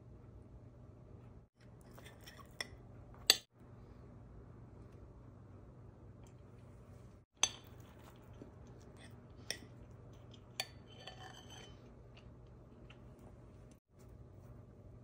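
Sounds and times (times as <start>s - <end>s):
fork clinking against ceramic bowl: 9.5s - 11.8s.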